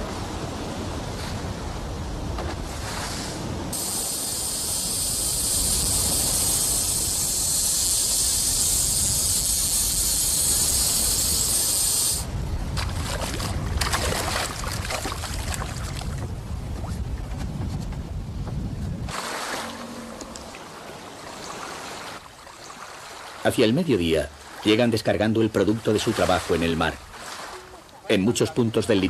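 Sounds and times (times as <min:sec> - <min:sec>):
loud high hiss: 0:03.8 - 0:12.3
water rumbling against hull: 0:12.4 - 0:22.3
water splashes: 0:12.7 - 0:17.0, 0:19.1 - 0:29.0.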